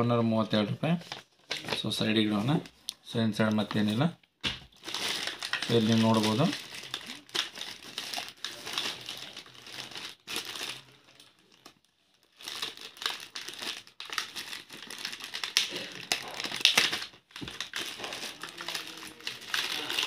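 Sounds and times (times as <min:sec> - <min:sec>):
plastic packaging crinkling: 0:04.7 - 0:20.0.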